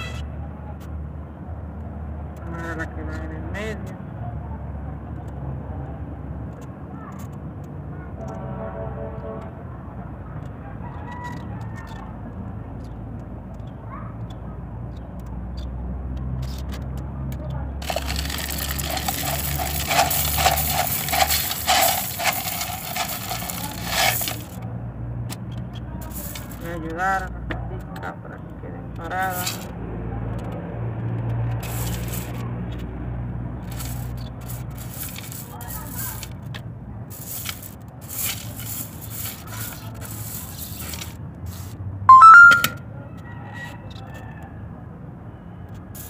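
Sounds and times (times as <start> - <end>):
gravel potting mix pouring: 17.8 - 24.5, 37.1 - 41.0
short rising electronic tone: 42.1 - 42.8.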